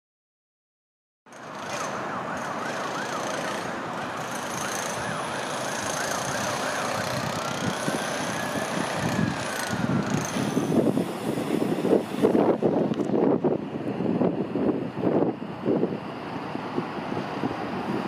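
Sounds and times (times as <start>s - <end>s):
traffic hum: 1.3s - 18.0s
emergency vehicle siren: 1.4s - 10.2s
wind gusts on microphone: 5.8s - 18.0s.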